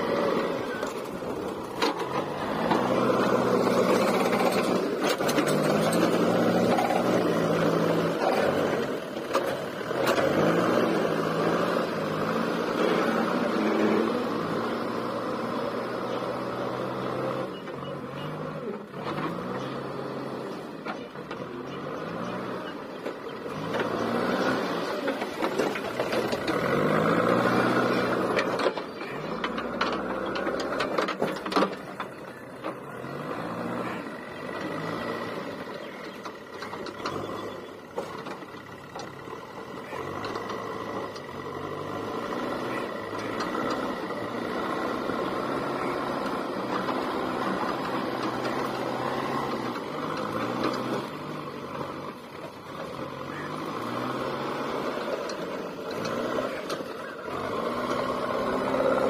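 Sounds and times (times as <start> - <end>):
diesel engine working under load: 0.0 - 59.0
knocks and clatter: 25.1 - 32.8.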